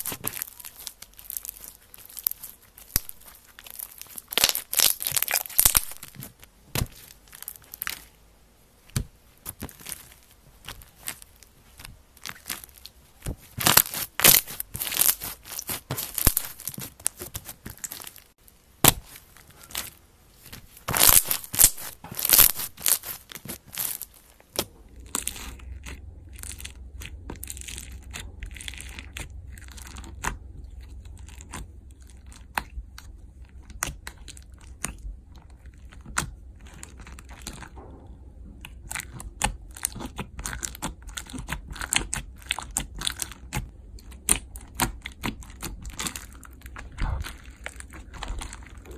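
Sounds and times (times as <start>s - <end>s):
slime squelching and popping: 0.0s - 8.2s, 8.9s - 37.8s, 38.6s - 48.9s
low hum: 17.7s - 41.1s.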